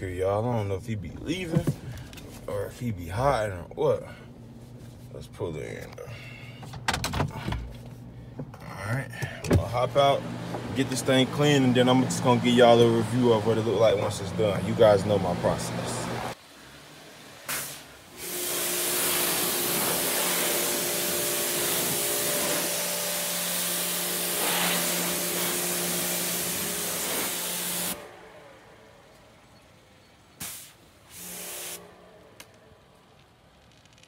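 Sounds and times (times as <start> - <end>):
pressure washer spraying: 17.4 - 28.1, 30.4 - 32.0.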